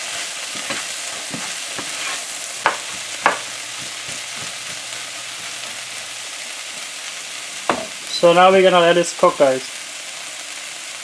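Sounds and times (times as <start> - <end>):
spatula scraping a pan: 0.0 - 5.8
food sizzling in a frying pan: 0.0 - 11.0.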